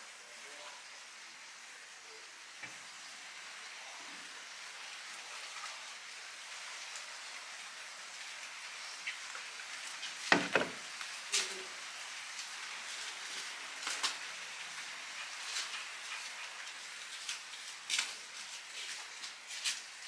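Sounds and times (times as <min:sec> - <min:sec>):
steady rain falling: 0:00.0 - 0:20.0
sharp knocks: 0:10.3 - 0:10.8.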